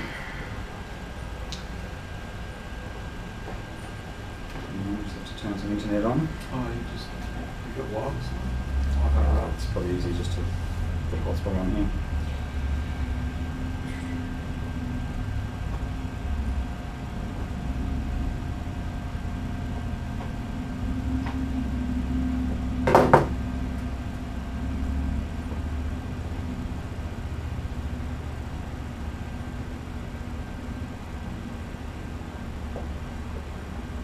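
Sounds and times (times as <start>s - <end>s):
low room hum: 0.0s - 34.0s
double knock: 22.8s - 23.4s.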